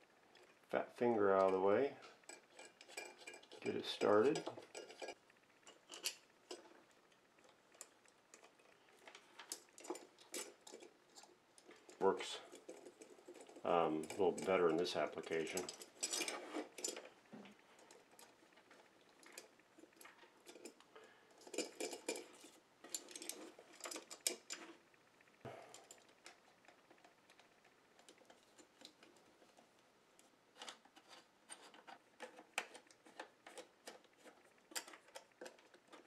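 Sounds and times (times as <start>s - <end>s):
small metal hardware clinking: 9.4s - 17.1s, 21.4s - 24.7s.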